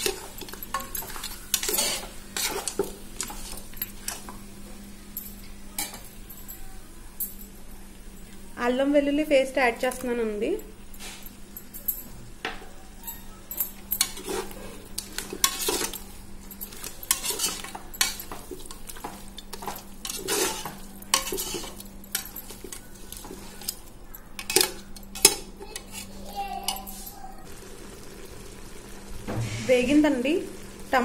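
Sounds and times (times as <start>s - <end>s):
spoon scraping a pot: 0.0s - 4.4s, 13.7s - 27.0s
faint sizzle: 0.0s - 31.0s.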